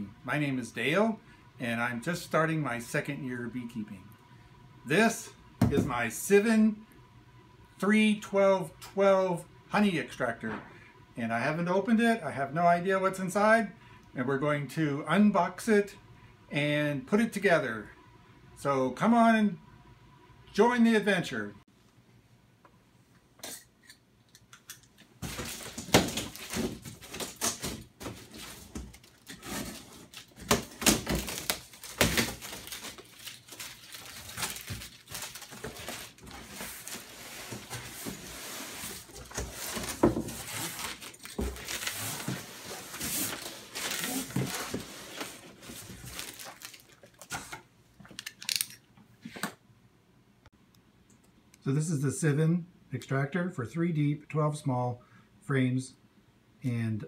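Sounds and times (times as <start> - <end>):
packing tape tearing: 25.2 - 38.2, 38.8 - 47.6, 48.2 - 48.8
cardboard flaps scraping: 25.2 - 46.8.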